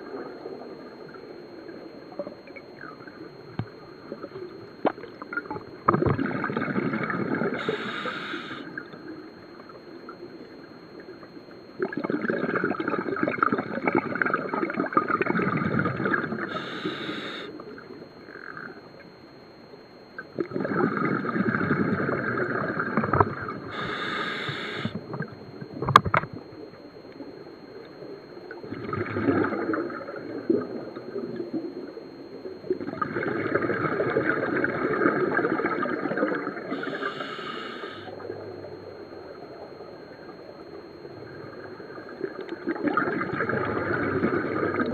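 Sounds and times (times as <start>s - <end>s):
underwater bubbling exhalations: 5.3s - 8.9s, 11.8s - 17.5s, 20.4s - 26.2s, 28.6s - 30.8s, 42.5s - 44.9s
regulator hissing inhale: 7.6s - 8.7s, 16.5s - 17.6s, 23.7s - 25.0s, 36.7s - 38.2s.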